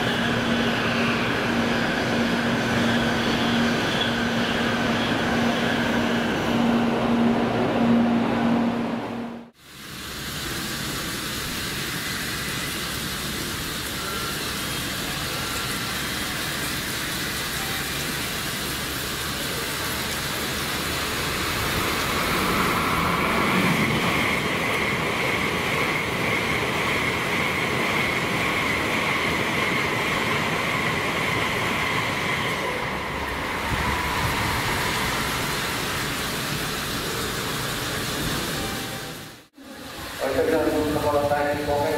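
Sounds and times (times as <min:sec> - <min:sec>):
train passing with high whine: 0:00.0 - 0:41.9
sprinklers spraying water: 0:09.6 - 0:23.4, 0:33.5 - 0:41.9.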